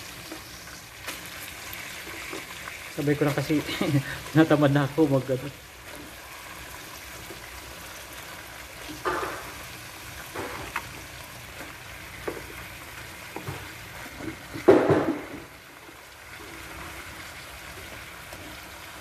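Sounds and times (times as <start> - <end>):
vegetables sizzling in hot oil: 0.0 - 19.0.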